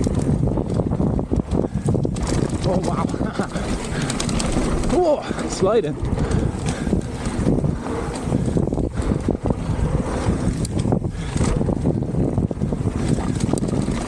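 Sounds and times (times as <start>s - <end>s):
bike rattling and knocking: 0.0s - 14.0s
wind rushing over microphone: 0.0s - 14.0s
tyres rumbling over gravel: 1.9s - 11.8s.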